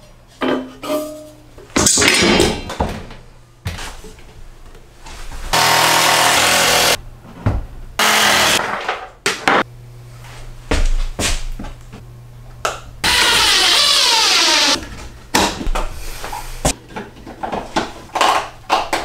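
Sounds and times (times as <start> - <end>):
power drill running: 5.6 - 7.0, 8.0 - 8.6, 13.0 - 14.8.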